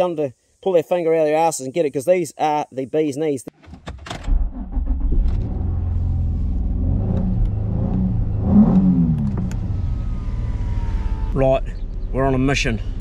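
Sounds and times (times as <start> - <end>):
car engine pulling away: 4.2 - 13.0.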